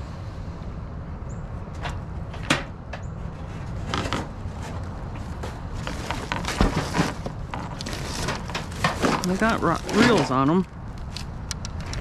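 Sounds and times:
low rumble: 0.0s - 6.1s.

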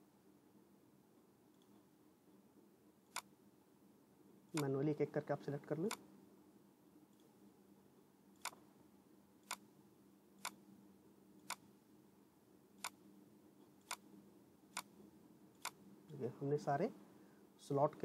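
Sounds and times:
faint steady hum: 0.0s - 18.0s
computer mouse clicks: 8.4s - 8.6s, 10.4s - 10.6s, 12.8s - 13.0s, 15.6s - 15.8s.

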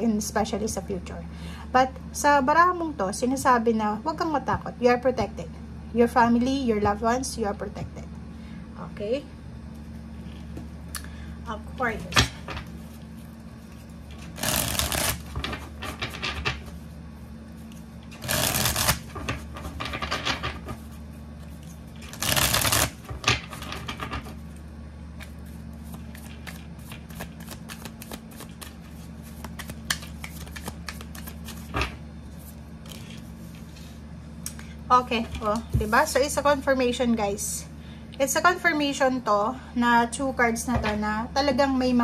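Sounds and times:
steady low hum: 0.0s - 42.0s
cards riffle-shuffled: 13.7s - 16.8s, 17.7s - 20.0s, 21.6s - 24.2s, 25.4s - 33.6s.

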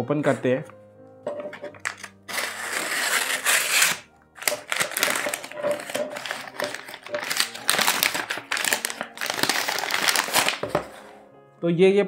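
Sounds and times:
paper crinkling and rustling: 1.4s - 11.2s
knife slitting paper: 1.8s - 11.1s.

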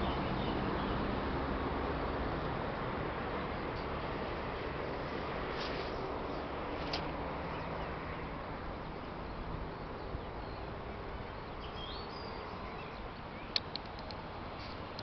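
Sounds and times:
outdoor background noise: 0.0s - 15.0s
sharp clicks: 13.5s - 14.2s.

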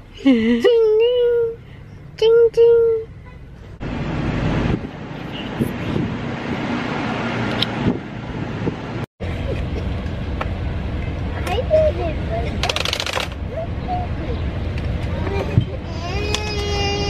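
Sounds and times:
wind buffeting microphone: 4.1s - 9.1s.

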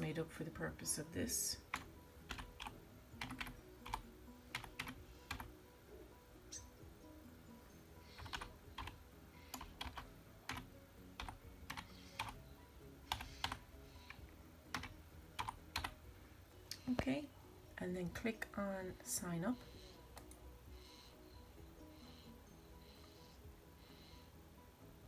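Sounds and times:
typing on computer keyboard: 1.7s - 5.5s, 8.2s - 12.4s, 13.1s - 16.0s.

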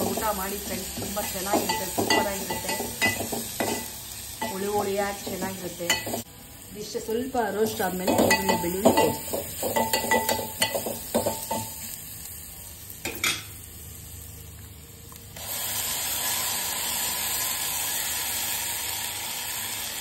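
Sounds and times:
frying in oil: 0.0s - 20.0s
loud sizzle: 0.0s - 20.0s
spoon clinking against metal pot: 8.1s - 11.8s.

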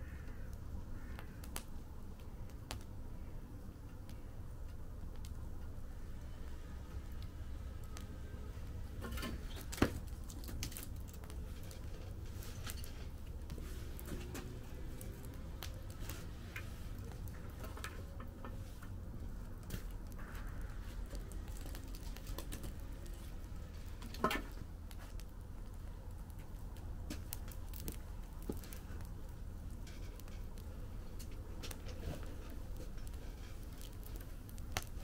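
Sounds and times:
low steady rumble: 0.0s - 35.0s
wood fire crackling and popping: 0.0s - 35.0s
low rumble: 11.3s - 27.1s.

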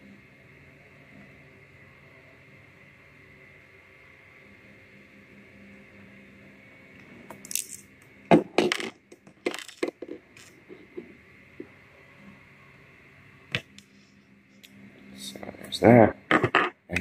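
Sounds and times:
small parts set on wooden table: 7.3s - 11.2s, 16.3s - 16.8s.

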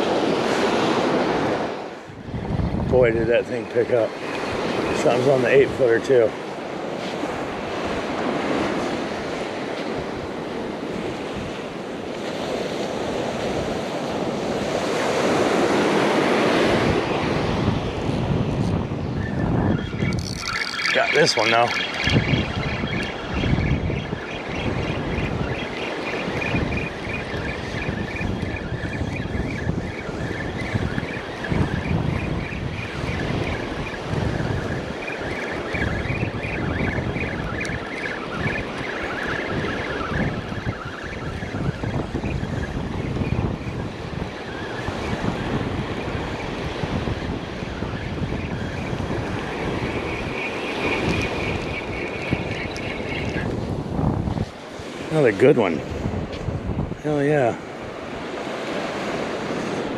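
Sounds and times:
surf washing up beach: 0.0s - 59.9s
wind buffeting microphone: 0.0s - 59.9s
fishing reel whirring: 19.9s - 31.8s, 32.5s - 42.4s.

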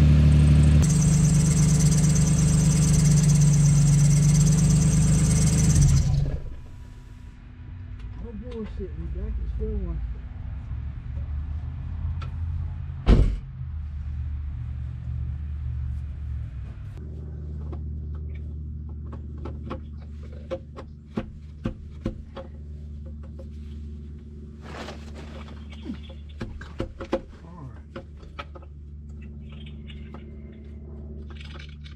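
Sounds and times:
car engine idling: 0.0s - 9.8s
loud thump: 13.0s - 13.5s
clicks and knocks in engine bay: 17.6s - 23.6s, 25.6s - 30.2s.

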